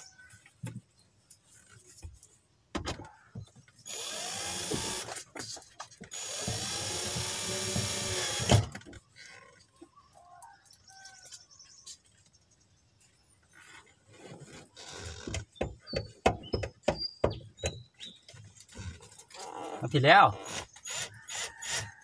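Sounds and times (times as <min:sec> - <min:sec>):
cordless drill driving screws: 0:03.8 - 0:05.3, 0:06.1 - 0:08.8, 0:20.4 - 0:21.9
drill clicks: 0:03.9 - 0:05.2, 0:06.1 - 0:08.8.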